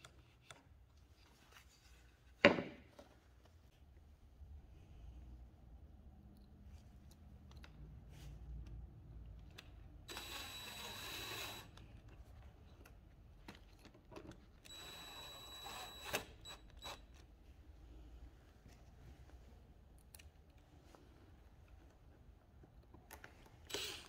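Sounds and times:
cordless drill motor whine: 0:10.1 - 0:11.7, 0:14.6 - 0:17.0.

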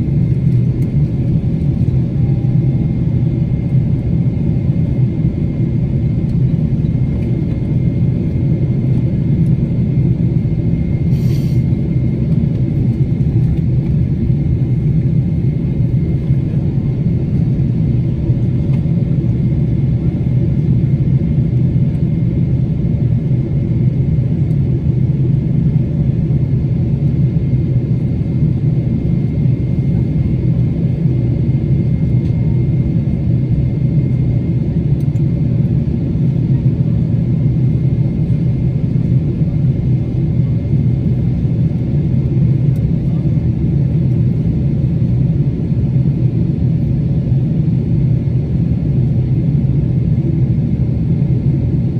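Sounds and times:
jet engines rumbling in cabin: 0:00.0 - 0:51.9
faint high whine: 0:01.8 - 0:04.4.

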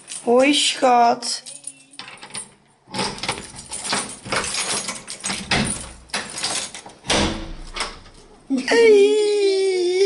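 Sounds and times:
key rattling in door lock: 0:00.0 - 0:00.7, 0:01.4 - 0:08.3.

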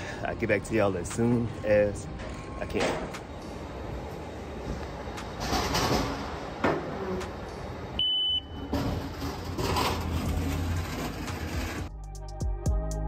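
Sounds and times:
short high beep: 0:08.0 - 0:08.6.

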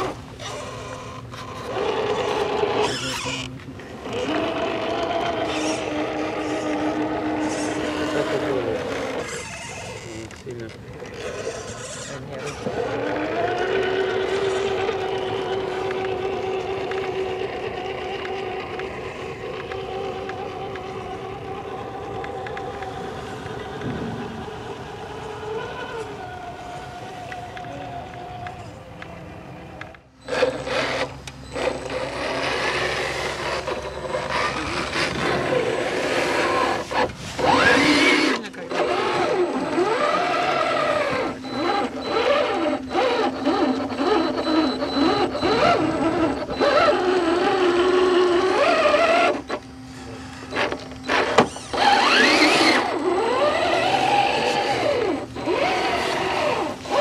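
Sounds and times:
toy truck electric motors whining: 0:00.0 - 0:57.0.

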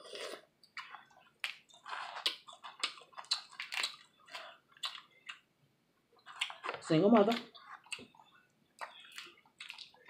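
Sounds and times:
chewing: 0:00.0 - 0:05.5, 0:06.2 - 0:10.0.

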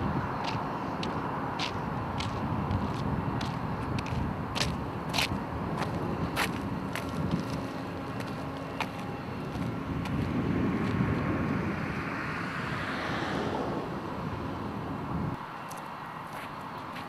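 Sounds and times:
wind on microphone: 0:00.0 - 0:15.4
road traffic rush: 0:00.0 - 0:17.0
vehicle passing: 0:00.0 - 0:17.0.

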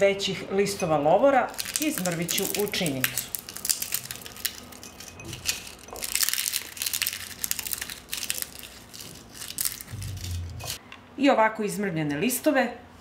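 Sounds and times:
dry leaves crackling: 0:01.5 - 0:10.8.

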